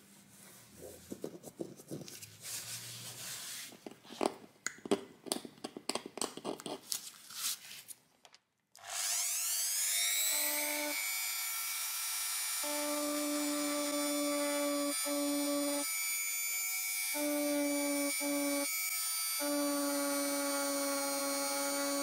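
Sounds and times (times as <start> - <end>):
rotary tool whine: 8.8 - 22.0.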